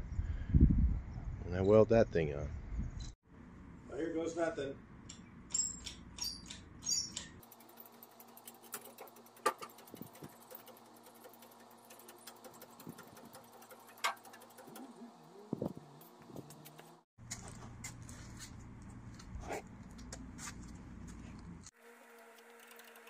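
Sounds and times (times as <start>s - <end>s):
rotisserie squeaks: 5.5s - 15.5s.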